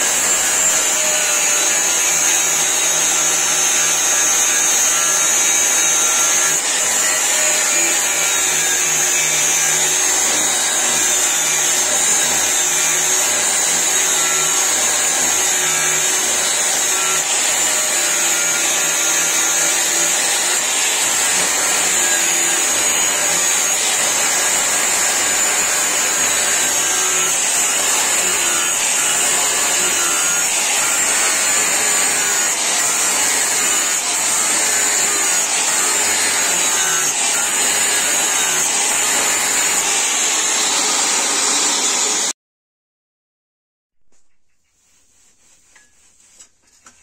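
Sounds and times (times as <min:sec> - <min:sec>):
angle grinder grinding steel: 0:00.0 - 0:42.3.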